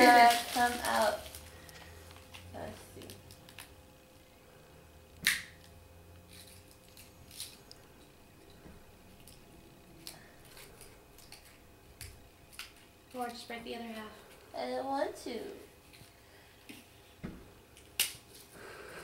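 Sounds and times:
faint cookie crackles: 0:00.0 - 0:19.0
fortune cookie snapping: 0:05.2 - 0:05.7, 0:17.8 - 0:18.3.

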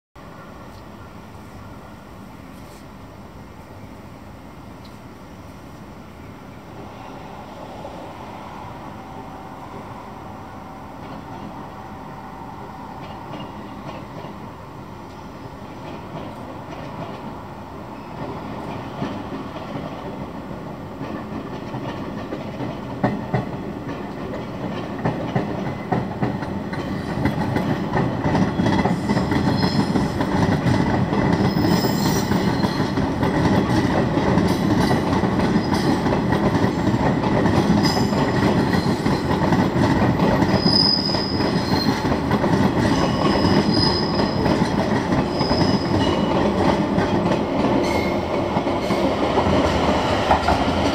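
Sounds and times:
train wheels clattering over rail joints: 0:21.0 - 0:50.9
train wheels squealing: 0:28.4 - 0:30.2, 0:31.3 - 0:33.1, 0:34.5 - 0:36.0, 0:37.6 - 0:39.6, 0:40.2 - 0:46.6, 0:47.8 - 0:49.1.

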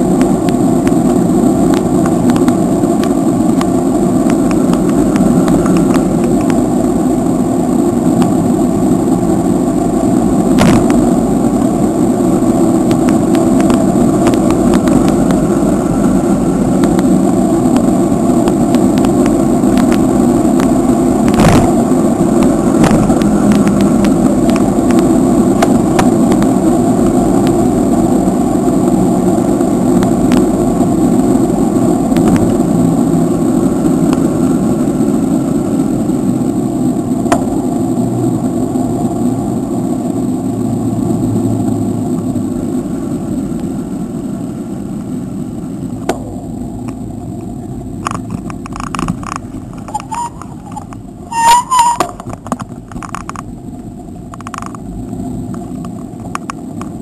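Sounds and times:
bicycle road rumble: 0:00.0 - 0:57.0
wind rushing over microphone: 0:00.0 - 0:57.0
clicks and rattles: 0:52.0 - 0:53.5, 0:54.3 - 0:54.8.

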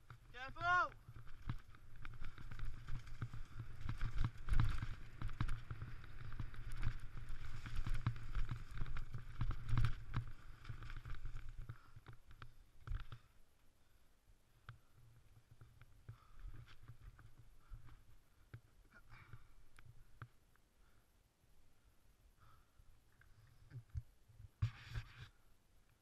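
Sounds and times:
bike rattling over bumps: 0:00.0 - 0:13.4.

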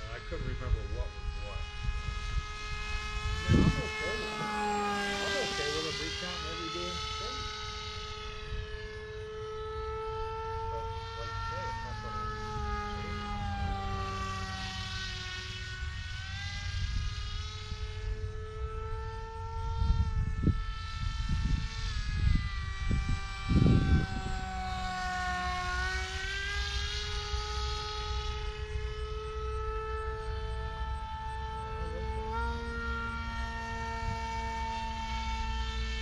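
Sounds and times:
wind gusts on microphone: 0:00.0 - 0:14.7, 0:19.1 - 0:25.0
model airplane motor whining: 0:00.0 - 0:36.0.

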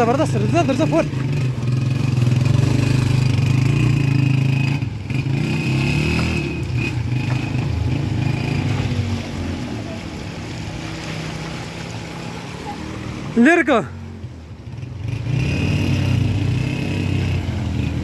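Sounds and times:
motorcycle engine running: 0:00.0 - 0:09.2.

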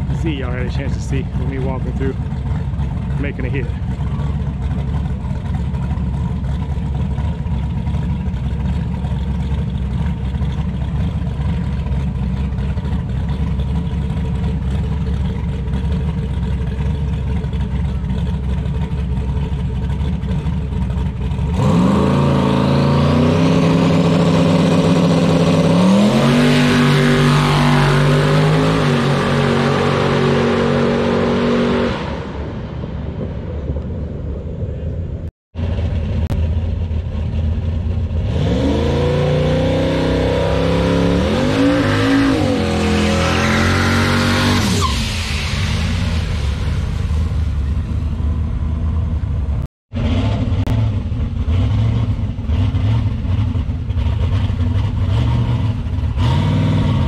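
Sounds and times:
drag car engine roaring: 0:00.0 - 0:57.0.

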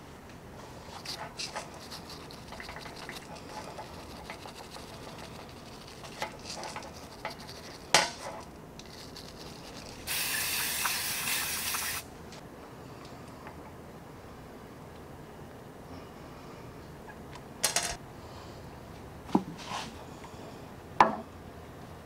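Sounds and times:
aerosol can spraying: 0:10.1 - 0:12.1.

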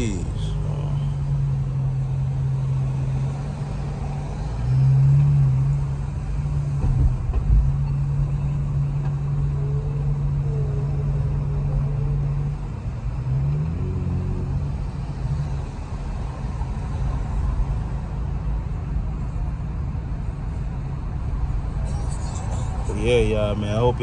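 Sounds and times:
car engine droning: 0:00.0 - 0:24.0.

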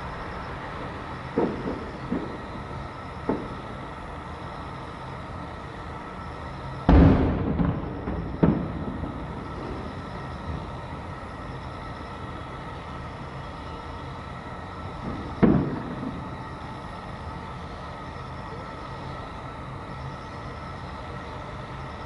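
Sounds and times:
fireworks booming in the distance: 0:00.0 - 0:20.1
steady background noise: 0:00.0 - 0:22.0.

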